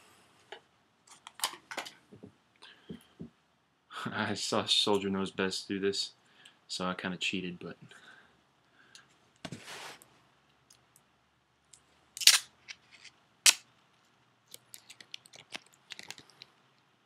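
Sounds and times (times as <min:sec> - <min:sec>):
plastic packaging rustling: 0:14.5 - 0:16.5.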